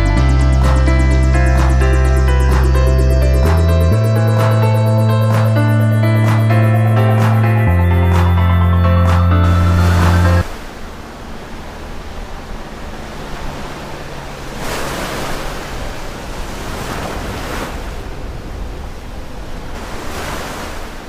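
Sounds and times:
waves breaking and washing in: 4.2s - 21.0s.

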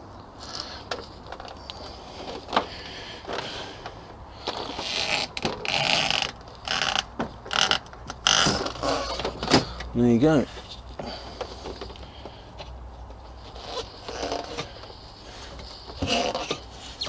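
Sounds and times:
tyre bar scraping rim: 13.5s - 14.8s, 15.7s - 17.0s.

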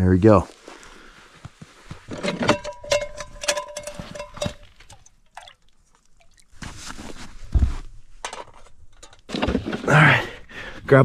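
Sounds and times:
soft rustle: 0.4s - 2.1s, 5.8s - 8.2s
metal pot clinking: 2.1s - 5.4s.

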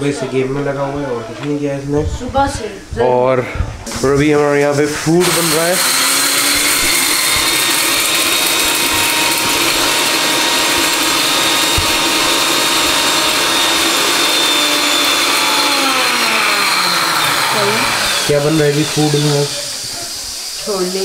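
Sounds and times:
mixer grinder whirring: 5.2s - 21.0s.

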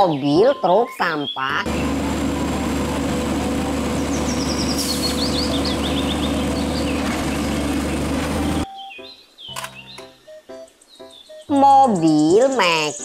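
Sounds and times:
garbage truck engine running: 1.6s - 8.7s.

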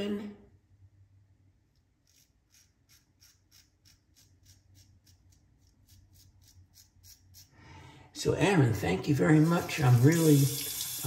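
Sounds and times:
razor scraping stubble: 1.9s - 7.5s.

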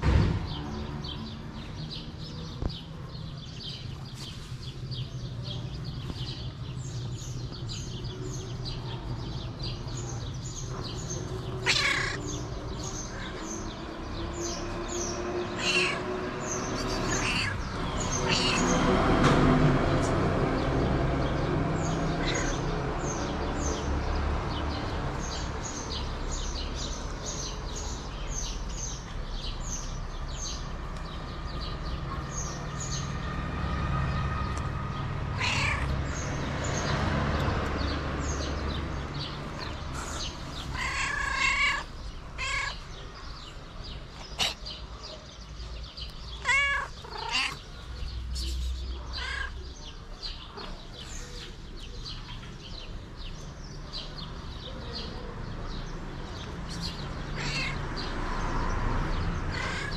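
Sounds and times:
small birds chirping: 0.0s - 59.9s
cat meowing: 11.6s - 12.3s, 15.5s - 18.8s, 22.1s - 22.6s, 35.4s - 36.0s, 40.6s - 42.9s, 46.4s - 47.7s, 49.0s - 49.7s, 56.9s - 58.2s, 59.5s - 59.9s.

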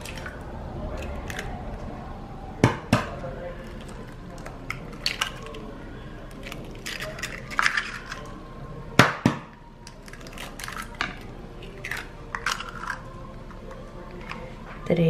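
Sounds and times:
shells being pulled apart: 9.8s - 13.1s.

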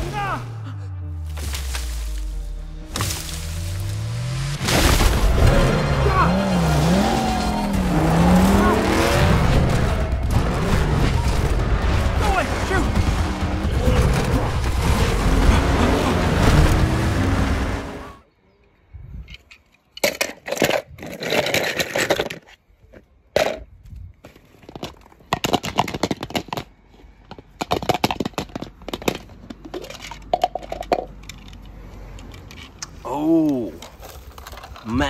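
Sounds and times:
animated film soundtrack: 0.0s - 19.3s
toy cars clattering: 19.3s - 23.7s, 24.4s - 32.8s, 33.5s - 35.0s.

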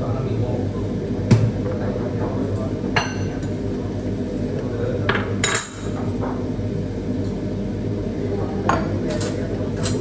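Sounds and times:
steady low hum: 0.0s - 10.0s
dishes and cutlery clinking: 8.7s - 10.0s.

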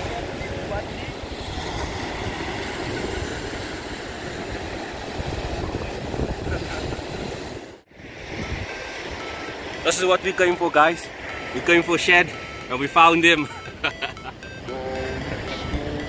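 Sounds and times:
wind on microphone: 0.0s - 9.8s
breaking surf: 0.0s - 16.0s.

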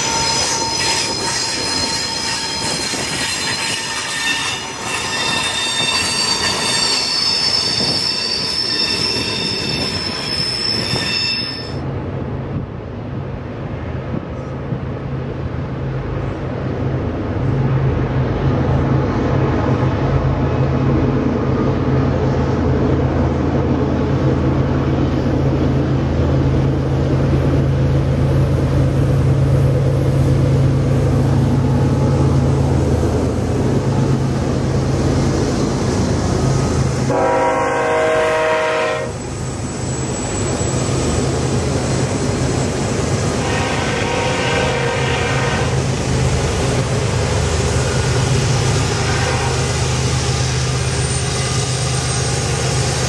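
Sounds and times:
diesel locomotive engines droning: 0.0s - 53.0s
locomotive horn: 37.1s - 39.2s, 43.4s - 45.8s, 48.8s - 49.9s.

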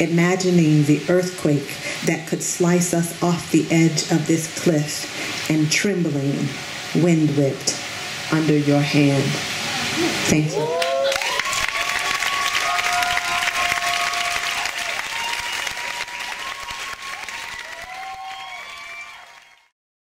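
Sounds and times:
audience applauding: 10.5s - 19.7s.

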